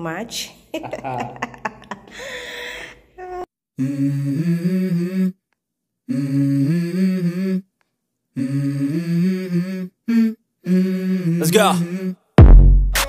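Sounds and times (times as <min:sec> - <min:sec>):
person humming: 0:03.2 - 0:05.4, 0:06.1 - 0:07.7, 0:08.4 - 0:12.2.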